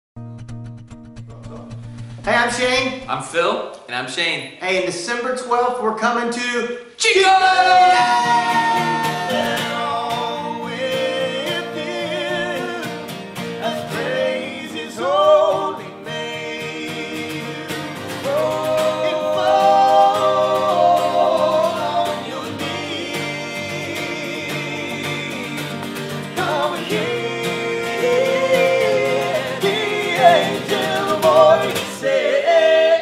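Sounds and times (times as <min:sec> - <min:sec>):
acoustic guitar: 0:00.2 - 0:04.0, 0:06.8 - 0:33.0
men singing: 0:07.0 - 0:33.0.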